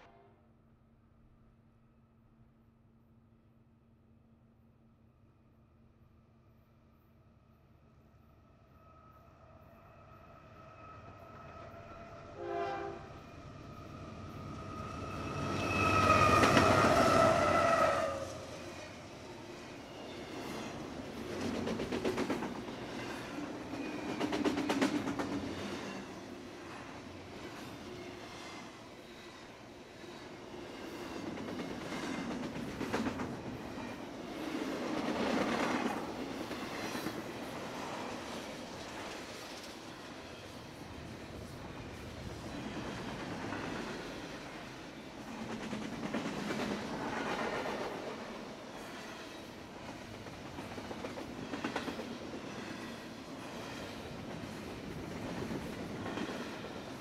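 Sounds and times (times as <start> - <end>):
train horn: 0.0 - 0.5, 9.1 - 13.8, 14.5 - 18.6
train cars rumbling past: 9.0 - 57.0.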